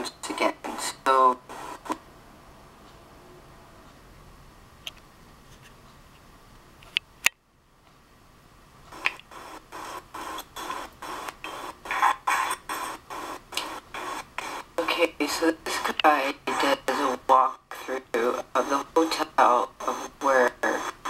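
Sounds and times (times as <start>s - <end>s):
faint steady hum: 0.0s - 21.0s
footsteps through computer speakers: 8.9s - 17.1s.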